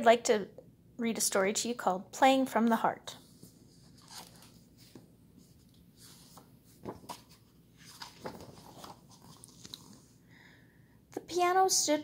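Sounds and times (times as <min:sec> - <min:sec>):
book pages rustling: 0:03.2 - 0:10.2.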